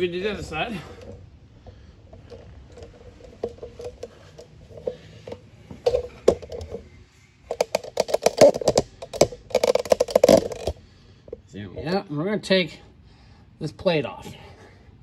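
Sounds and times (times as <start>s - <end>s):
rapid rattling clicks: 1.0s - 11.4s.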